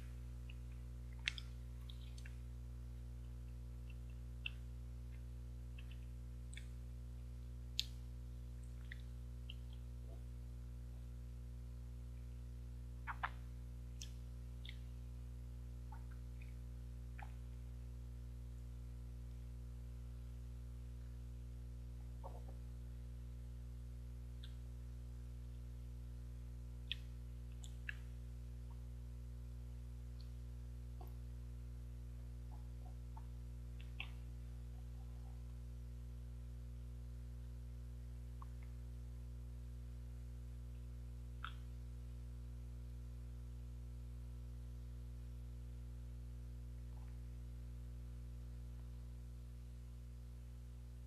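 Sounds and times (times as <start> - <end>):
wet lip smacks and sucking: 0.0 - 2.4, 13.0 - 13.4, 26.8 - 28.1, 41.4 - 41.7
steady low hum: 0.0 - 51.0.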